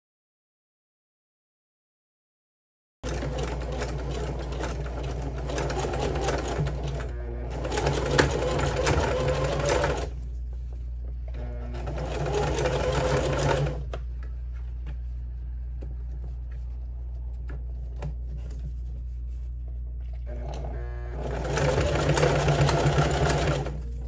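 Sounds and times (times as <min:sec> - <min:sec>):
sewing machine stitching: 0:03.0 - 0:10.2, 0:11.3 - 0:13.9, 0:20.2 - 0:24.0.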